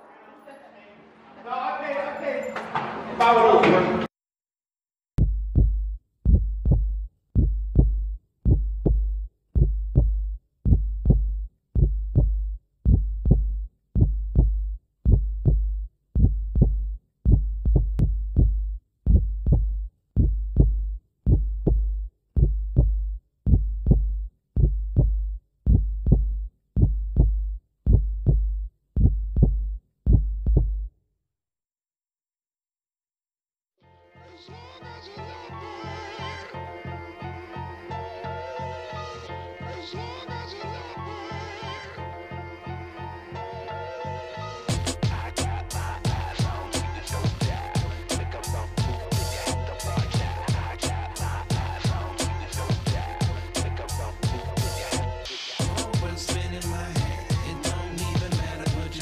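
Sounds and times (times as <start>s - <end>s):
deep bass thump with ring: 5.2s - 30.9s.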